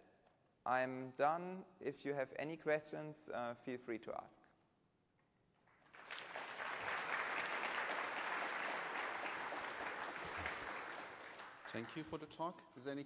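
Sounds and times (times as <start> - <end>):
audience applauding: 5.8 - 12.3.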